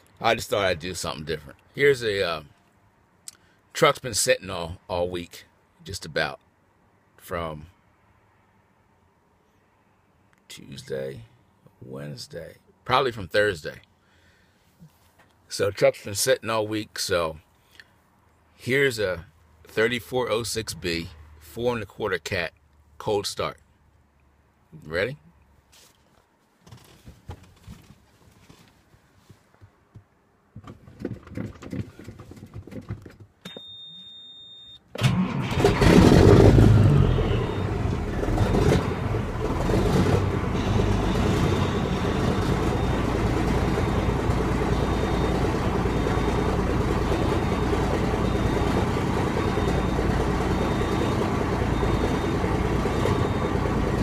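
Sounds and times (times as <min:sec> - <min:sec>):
faint high beep: 0:33.5 - 0:34.8, 0:37.0 - 0:37.8, 0:49.4 - 0:54.0
diesel engine starting and idling: 0:34.9 - 0:54.0.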